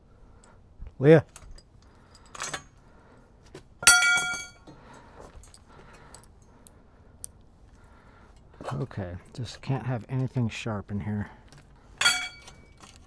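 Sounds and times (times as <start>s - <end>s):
metal conduit clanking and ringing: 3.8s - 4.7s, 12.0s - 12.8s.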